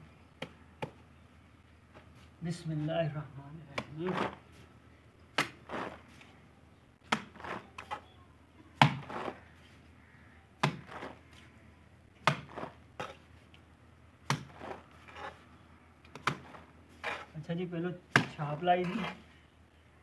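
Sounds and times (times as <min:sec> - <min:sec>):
trowel scraping: 0:03.8 - 0:04.6, 0:05.4 - 0:06.3, 0:07.3 - 0:08.1, 0:08.9 - 0:09.8, 0:10.8 - 0:11.4, 0:12.4 - 0:13.3, 0:14.4 - 0:15.5, 0:16.1 - 0:17.5, 0:18.3 - 0:19.4
trowel slapping mortar onto wall: 0:10.6 - 0:11.2, 0:12.2 - 0:13.2, 0:14.2 - 0:15.3, 0:16.1 - 0:17.3, 0:18.1 - 0:19.2.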